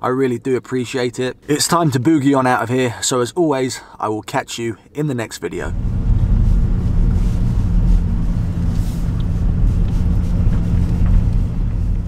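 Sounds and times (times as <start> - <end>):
car engine and tyre noise: 5.7 - 12.0.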